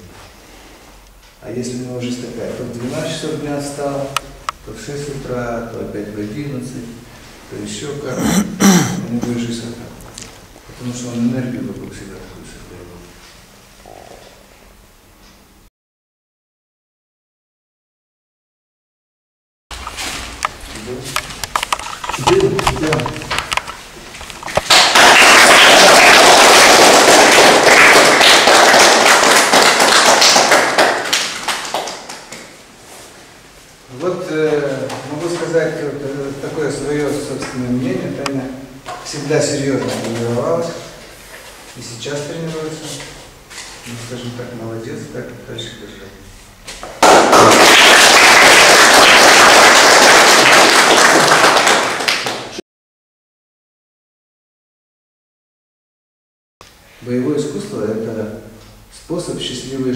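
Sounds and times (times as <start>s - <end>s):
group of people applauding: 24.5s - 32.4s, 47.0s - 52.6s.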